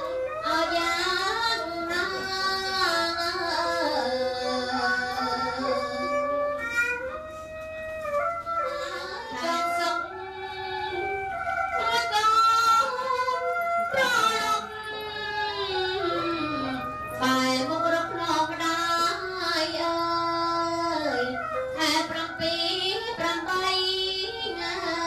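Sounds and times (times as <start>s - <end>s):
high voice singing: 11.8s - 25.0s.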